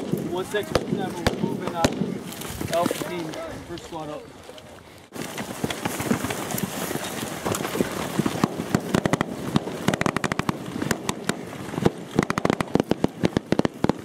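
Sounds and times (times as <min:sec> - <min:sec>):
automatic gunfire bursts: 0:08.4 - 0:14.0.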